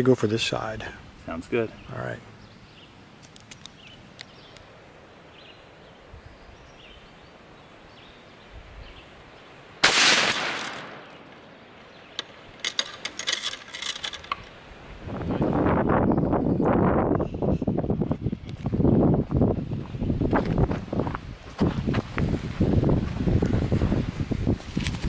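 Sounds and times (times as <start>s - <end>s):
rifle shot: 9.8s - 11.3s.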